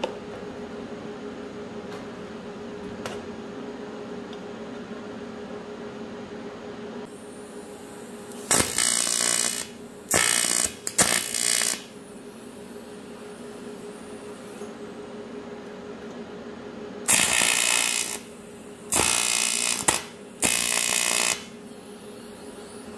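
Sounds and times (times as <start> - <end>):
steady hum: 0.0 - 22.9
welding arc bursts: 8.4 - 12.0, 17.1 - 21.6.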